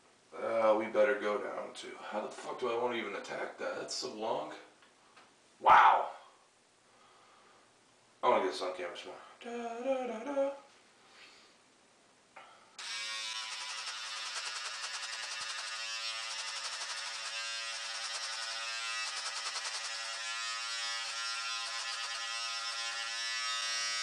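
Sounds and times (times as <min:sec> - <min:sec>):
electric beard trimmer buzzing: 0:12.8 - 0:24.0.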